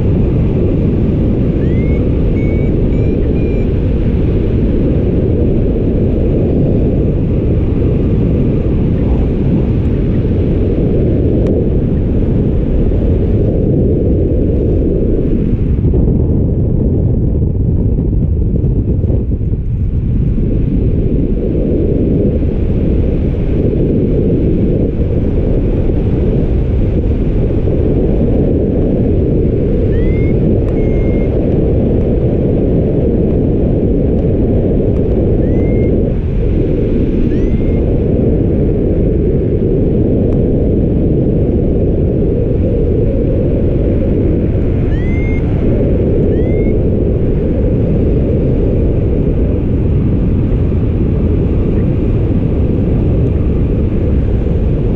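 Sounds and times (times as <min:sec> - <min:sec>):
wind rushing over microphone: 0:00.0 - 0:54.9
faint rising chirps: 0:46.3 - 0:46.7.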